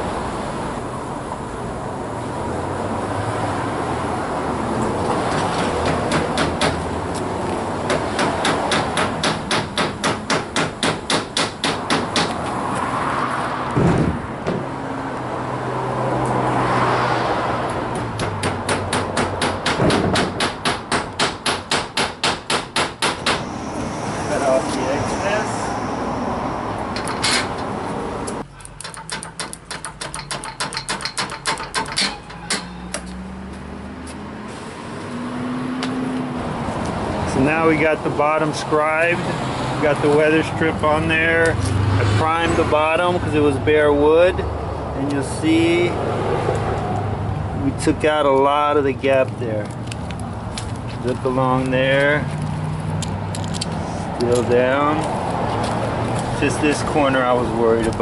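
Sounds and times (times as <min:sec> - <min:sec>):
hammer driving nails into wood: 0:07.9 - 0:12.4, 0:18.0 - 0:23.4, 0:28.6 - 0:33.1
dull thump: 0:13.8 - 0:14.7
sharp cutting clicks: 0:28.3 - 0:33.1.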